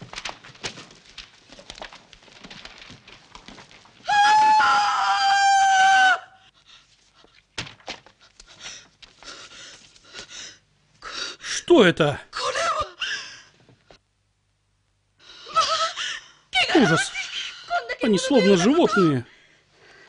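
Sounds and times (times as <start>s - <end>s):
woman screaming: 4.1s - 6.4s, 15.5s - 19.2s.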